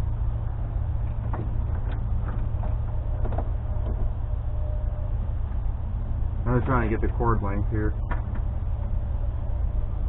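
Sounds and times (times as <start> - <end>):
charger wiring clicks: 1.0 - 4.2, 7.9 - 8.6.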